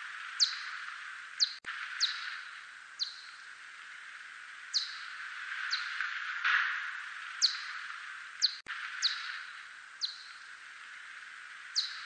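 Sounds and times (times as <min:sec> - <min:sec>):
steady hiss: 0:00.0 - 0:12.0
bat echolocation chirps: 0:00.2 - 0:03.5, 0:07.3 - 0:11.1, 0:11.7 - 0:12.0.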